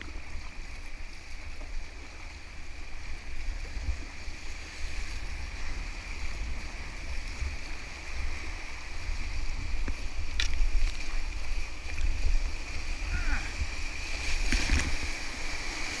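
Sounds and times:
low water rumble: 0:00.0 - 0:16.0
whitewater rushing: 0:06.4 - 0:16.0.

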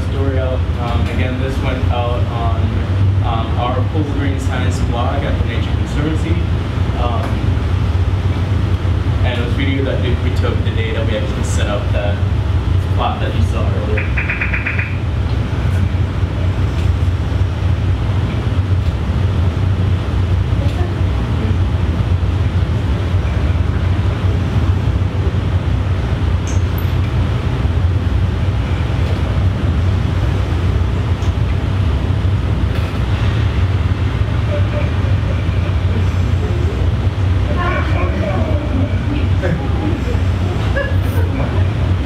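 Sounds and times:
loud low rumble: 0:00.0 - 0:42.0.

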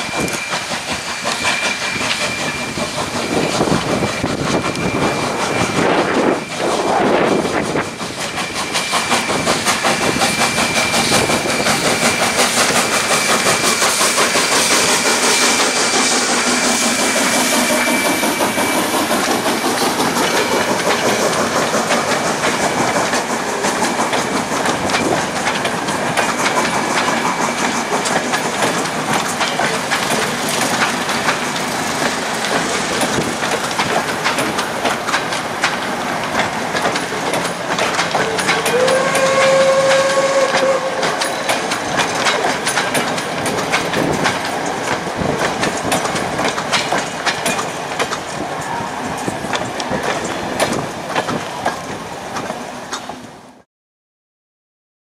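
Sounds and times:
steam locomotive hissing: 0:00.0 - 0:53.6
train wheels clattering over rail joints: 0:00.0 - 0:53.6.

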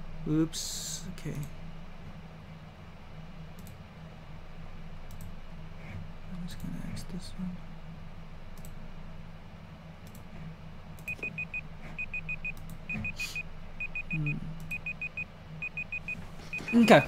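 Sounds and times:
low steady hum: 0:00.0 - 0:17.0
faint clicks: 0:03.6 - 0:03.8, 0:05.1 - 0:05.3, 0:08.6 - 0:08.8, 0:10.0 - 0:10.2
timer alarm beeping: 0:11.1 - 0:17.0.

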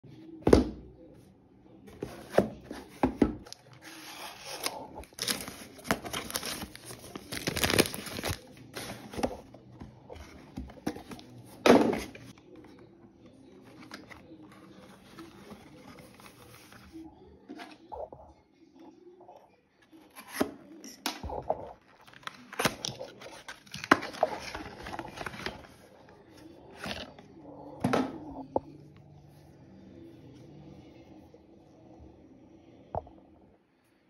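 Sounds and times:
cardboard box tearing and rustling: 0:03.9 - 0:09.3.

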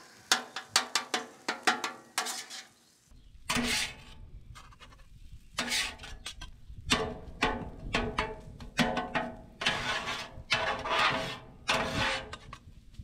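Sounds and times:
metal spatulas scraping griddle: 0:02.2 - 0:02.8, 0:03.5 - 0:06.4, 0:08.8 - 0:12.6.

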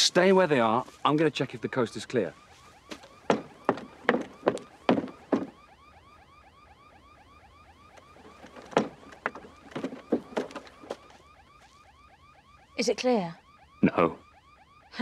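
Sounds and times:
electronic alarm warbling: 0:00.0 - 0:15.0
footsteps on metal ladder rungs: 0:02.9 - 0:05.6, 0:08.0 - 0:11.2.

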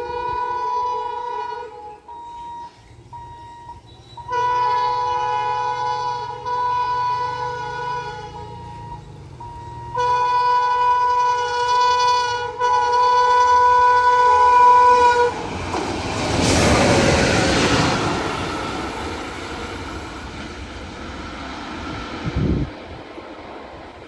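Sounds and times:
train horn blast: 0:00.0 - 0:02.1, 0:03.9 - 0:09.0, 0:09.8 - 0:15.4
locomotives rushing past: 0:14.1 - 0:24.0.

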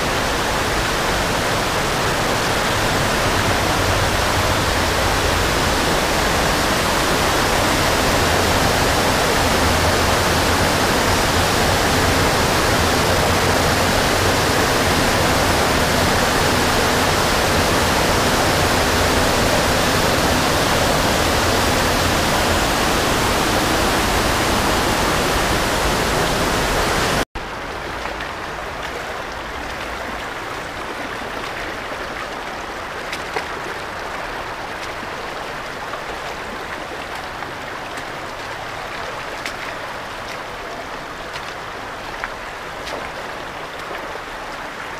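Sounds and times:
waterfall rushing: 0:00.0 - 0:27.3
creek flowing: 0:00.0 - 0:44.9.

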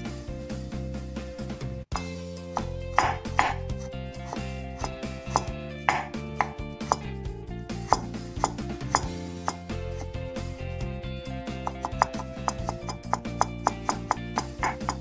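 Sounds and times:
background music: 0:00.0 - 0:15.0
knife chopping on cutting board: 0:02.0 - 0:07.1, 0:11.7 - 0:15.0.

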